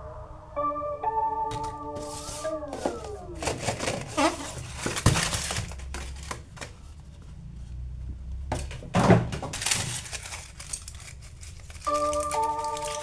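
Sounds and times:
cardboard box set down: 2.0 - 6.7
aluminium foil crinkling: 3.4 - 6.8, 9.4 - 13.0.

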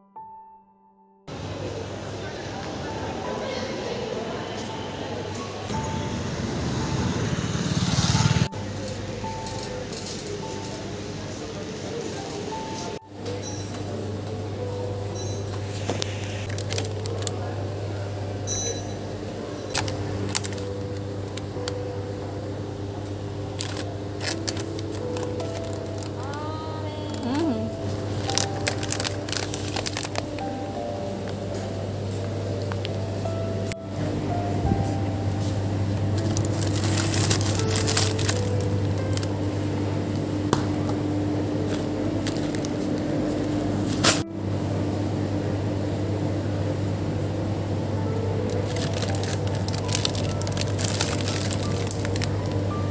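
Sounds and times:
steady low hum: 12.5 - 52.9
plastic packaging clicks and crinkles: 16.0 - 17.5, 19.7 - 21.8, 23.5 - 27.5, 28.1 - 30.8, 36.2 - 39.3, 41.8 - 44.2, 48.5 - 52.6.

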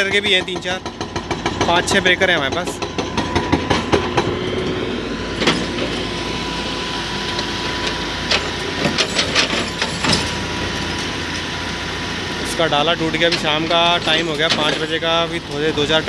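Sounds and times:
knocks and clanks: 0.0 - 4.8, 5.4 - 6.0, 7.2 - 11.2, 13.1 - 15.1
excavator diesel engine running: 0.0 - 16.0.

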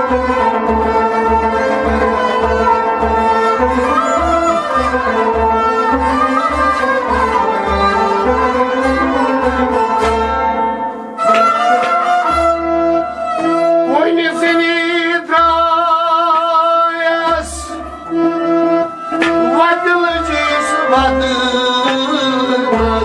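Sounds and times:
sustained wavering melody: 1.6 - 9.7.

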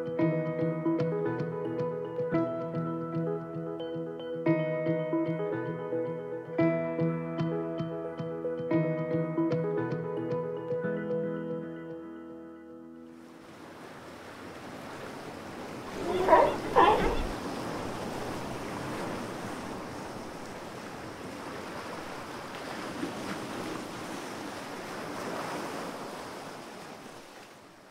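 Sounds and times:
ocean waves washing on shore: 13.2 - 27.9.

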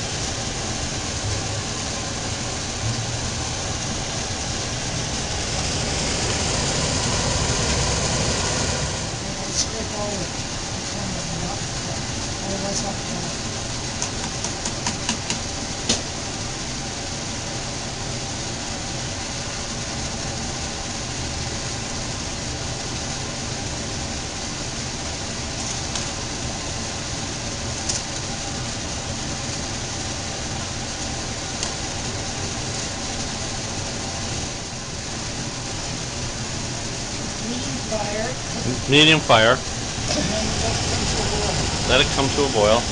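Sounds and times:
kitchen hum: 25.3 - 42.9.

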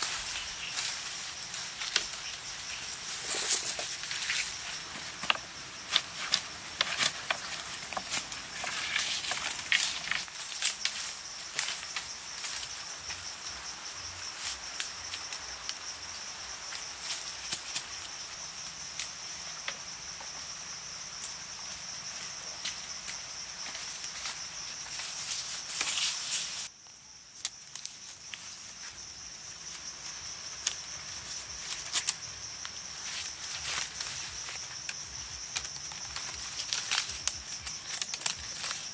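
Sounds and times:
wooden stakes clicking and tapping: 1.8 - 2.3, 3.2 - 11.0, 34.9 - 38.9.

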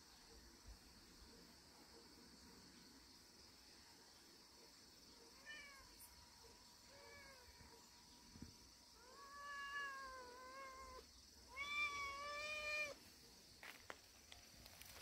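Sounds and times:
cat meowing: 5.4 - 5.9, 9.0 - 13.0.

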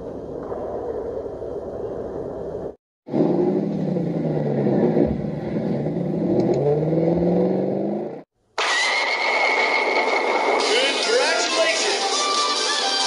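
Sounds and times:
monster truck engine revving: 3.1 - 10.7.

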